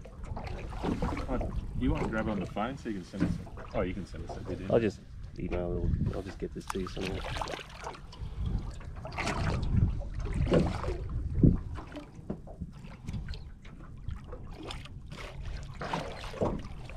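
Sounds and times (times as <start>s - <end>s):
water lapping against a boat: 0.0s - 16.9s
wind buffeting microphone: 0.1s - 13.4s.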